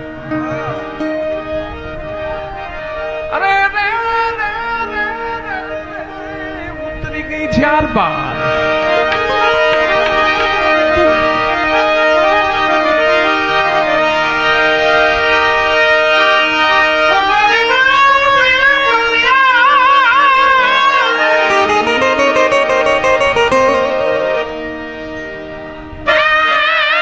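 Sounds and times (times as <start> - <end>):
harmonium chords: 0.0 - 27.0
wavering vibrato melody: 20.2 - 25.9.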